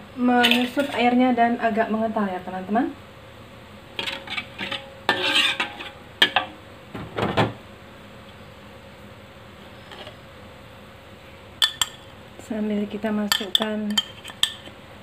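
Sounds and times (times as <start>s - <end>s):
metal spoon scraping a wok: 0.4s - 1.1s, 4.0s - 6.5s
spoon clinking against pan: 11.6s - 12.1s, 13.3s - 14.6s.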